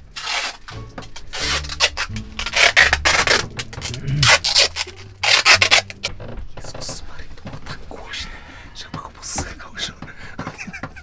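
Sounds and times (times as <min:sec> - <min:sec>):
packing tape ripping off roll: 0:00.0 - 0:06.1.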